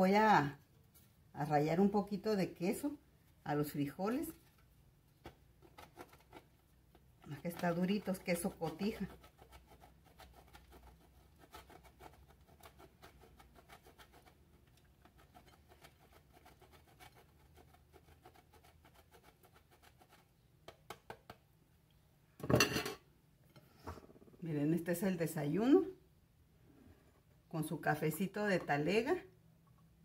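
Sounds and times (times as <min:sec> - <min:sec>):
cheese grated on metal grater: 0:07.4 - 0:20.2.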